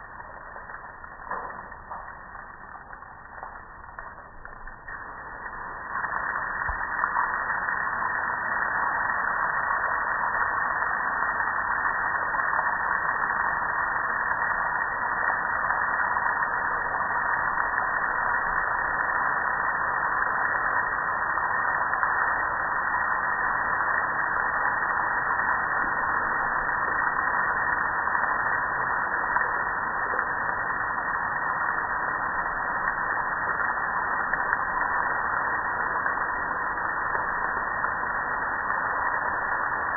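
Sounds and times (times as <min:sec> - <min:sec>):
water running onto concrete: 0:00.0 - 0:07.8.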